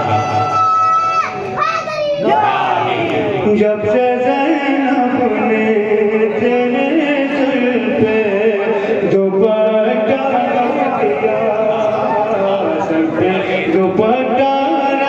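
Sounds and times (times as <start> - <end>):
man chanting through microphone: 2.8 - 15.0.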